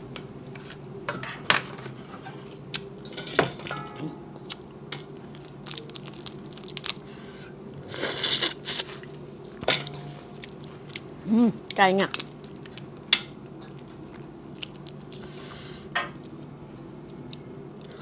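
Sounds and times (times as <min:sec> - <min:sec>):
shells cracking and snapping: 0:04.5 - 0:07.0, 0:12.1 - 0:13.4.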